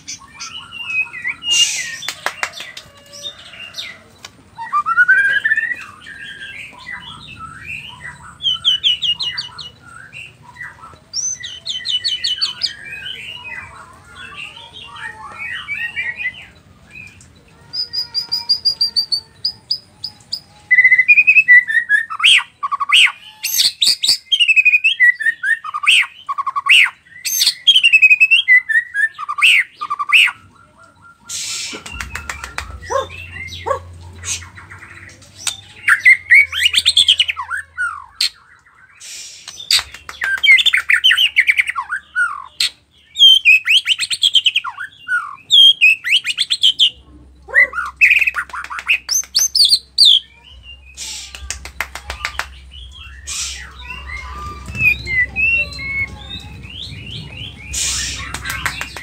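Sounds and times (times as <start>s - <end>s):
songbird singing: 0.0s - 59.0s.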